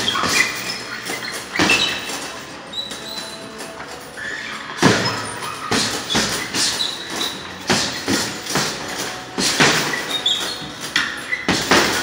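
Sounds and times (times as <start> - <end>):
faint squeaks: 0.0 - 12.0
gloves punching heavy bag: 4.8 - 12.0.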